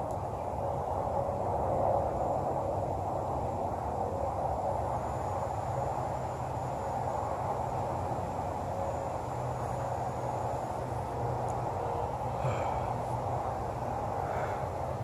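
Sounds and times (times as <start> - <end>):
outdoor rushing hiss: 4.5 - 15.0.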